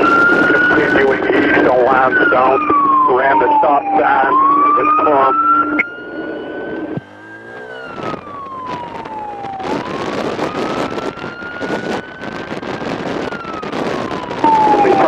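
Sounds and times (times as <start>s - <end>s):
wind buffeting microphone: 0.0s - 3.1s, 6.6s - 15.0s
police siren wailing: 0.0s - 15.0s.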